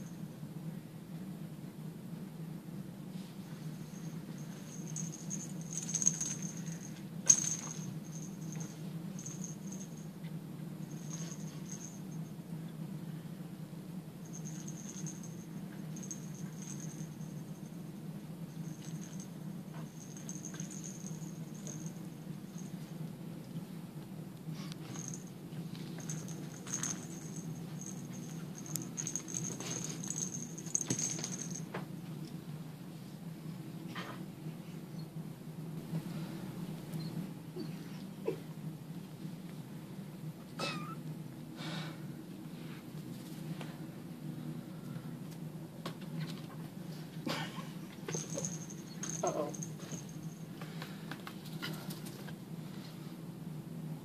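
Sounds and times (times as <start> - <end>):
low steady hum: 0.0 - 54.0
toy ball bell jingling: 3.9 - 10.1, 10.9 - 12.2, 14.2 - 17.7, 18.6 - 22.8, 25.0 - 25.3, 25.9 - 31.7, 48.1 - 50.4.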